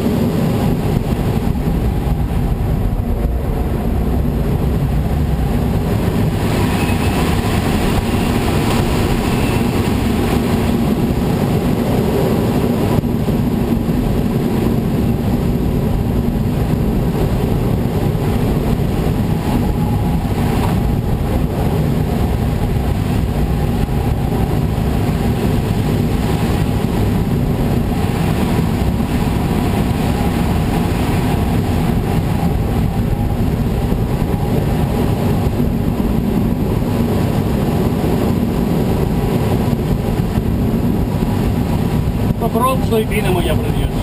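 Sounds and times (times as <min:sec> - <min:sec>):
airflow rushing over glider: 0:00.0 - 0:44.0.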